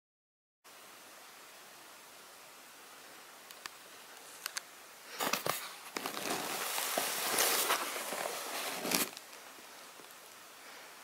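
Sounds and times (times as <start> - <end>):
faint clicks: 3.4 - 4.7
cardboard rustling and scraping: 5.2 - 9.4.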